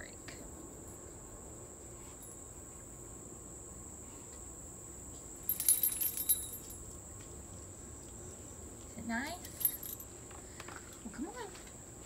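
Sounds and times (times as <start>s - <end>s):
insects droning: 0.0s - 12.0s
metallic jingling: 5.4s - 6.9s, 9.4s - 10.1s.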